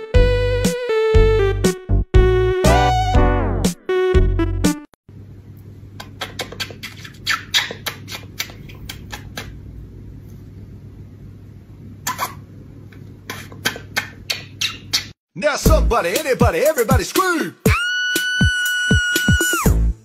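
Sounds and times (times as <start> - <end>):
kiss smacks: 6.0 - 9.6, 13.6 - 15.1.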